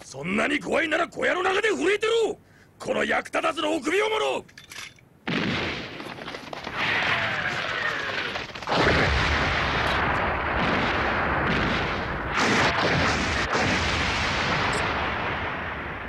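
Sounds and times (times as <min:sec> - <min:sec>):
explosion blast: 0:05.3 - 0:06.1, 0:08.7 - 0:16.0
rumbling explosions: 0:05.3 - 0:16.0.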